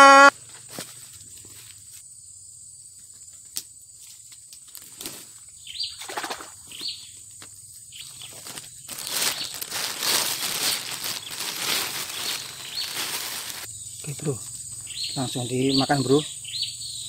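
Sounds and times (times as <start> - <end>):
high insect whine: 0.0 - 17.0
falling bird chirps: 7.9 - 13.7
leaves rustling: 8.0 - 13.7.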